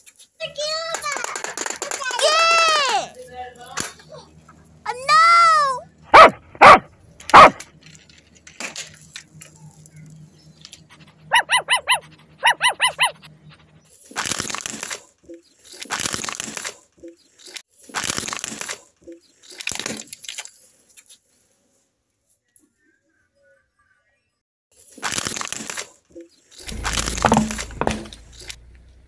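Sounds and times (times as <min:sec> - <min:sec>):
toy dog electronic bark: 0:06.1 - 0:07.6, 0:11.3 - 0:13.2
tyres crushing plastic toys: 0:17.4 - 0:20.6, 0:24.8 - 0:26.0, 0:26.6 - 0:28.6
loud sharp knocks: 0:26.7 - 0:28.2.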